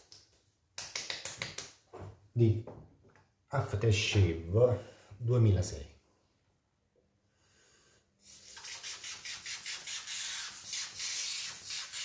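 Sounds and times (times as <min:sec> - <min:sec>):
atomizer spray hissing puffs: 0:08.2 - 0:12.0.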